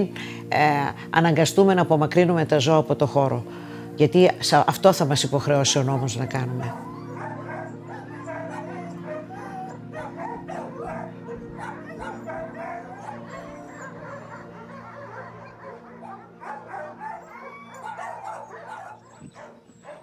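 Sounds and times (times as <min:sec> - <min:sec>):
background music with low notes: 0:00.0 - 0:20.0
dogs barking and yipping: 0:05.4 - 0:20.0.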